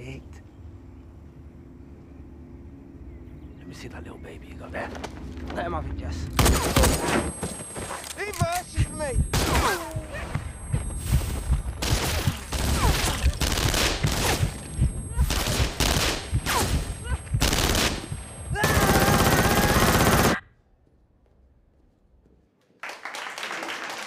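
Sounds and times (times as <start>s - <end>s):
gunshots echoing: 9.3s - 9.8s, 11.8s - 14.6s, 15.2s - 20.4s.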